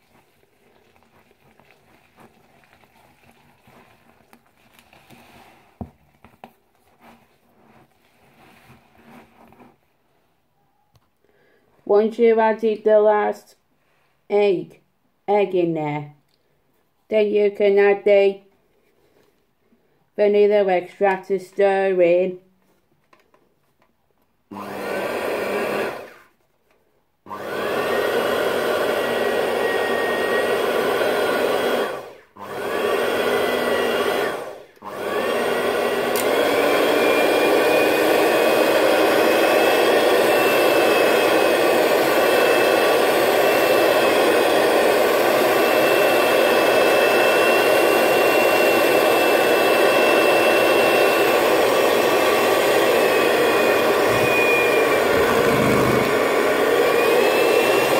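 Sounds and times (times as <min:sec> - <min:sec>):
electric hand mixer beating batter: 0:24.5 - 0:26.2, 0:27.3 - 0:57.9.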